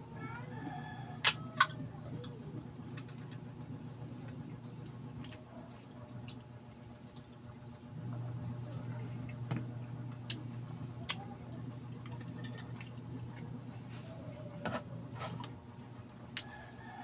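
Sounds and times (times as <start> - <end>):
steady low hum: 0.0 - 17.0
chewing noises: 10.1 - 14.6.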